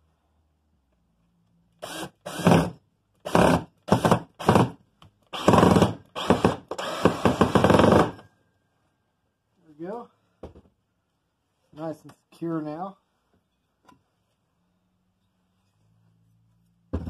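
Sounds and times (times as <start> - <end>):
power drill driving screw into wood: 1.8 - 8.2.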